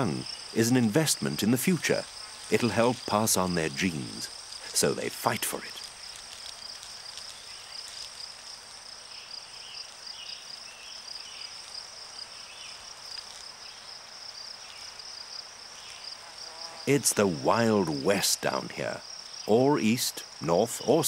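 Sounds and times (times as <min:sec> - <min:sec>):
insects trilling: 0:00.0 - 0:21.0.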